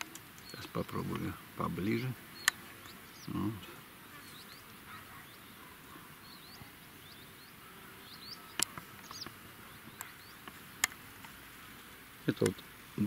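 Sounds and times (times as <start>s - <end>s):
faint outdoor air hiss: 0.0s - 13.0s
small birds chirping: 0.0s - 13.0s
sharp clicks: 2.4s - 3.0s.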